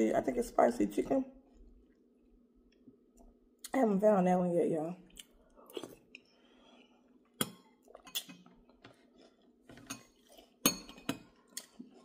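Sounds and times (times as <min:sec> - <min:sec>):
chewing and slurping soup: 0:05.2 - 0:12.0.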